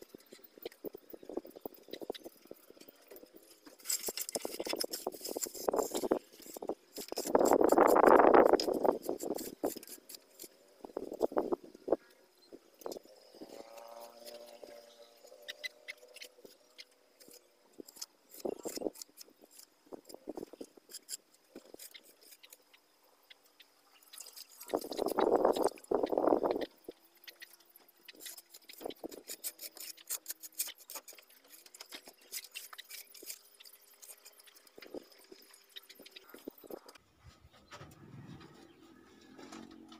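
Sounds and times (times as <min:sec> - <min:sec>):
trowel scraping wet mortar: 0:03.7 - 0:11.5, 0:27.5 - 0:37.0.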